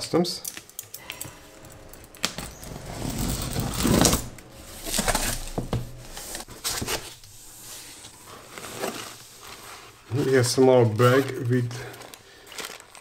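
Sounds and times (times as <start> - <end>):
cardboard flaps scraping and rustling: 2.2 - 11.4.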